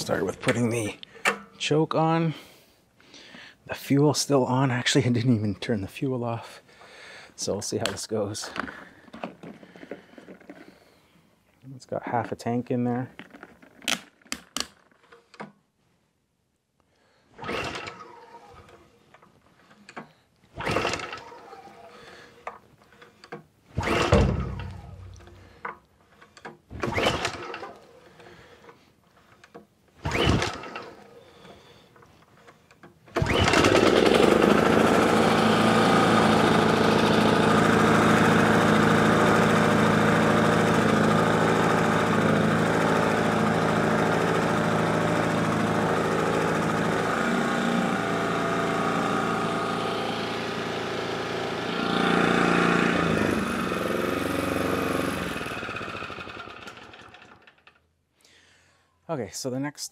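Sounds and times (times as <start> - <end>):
lawn mower engine running: 0.0 - 1.4, 17.4 - 18.8, 20.6 - 22.4, 23.8 - 25.5, 26.8 - 28.6, 30.0 - 31.6, 33.2 - 57.8
pull-start cord pulls: 0.0 - 1.5, 13.2 - 15.6, 17.4 - 57.9.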